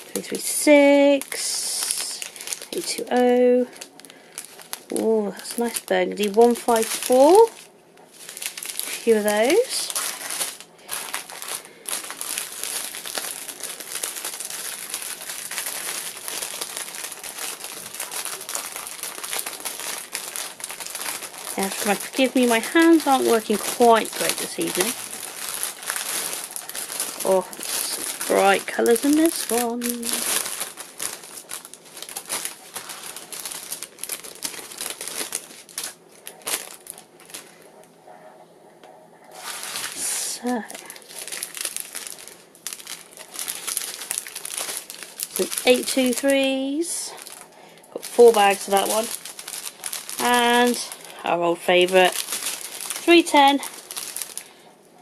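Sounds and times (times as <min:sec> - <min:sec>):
plastic packets crinkling: 0:00.0 - 0:37.9, 0:39.3 - 0:54.8.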